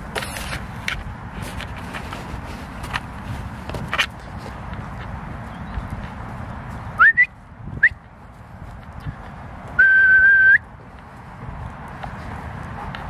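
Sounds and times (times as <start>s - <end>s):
person whistling: 7.0s - 8.0s, 9.8s - 10.6s.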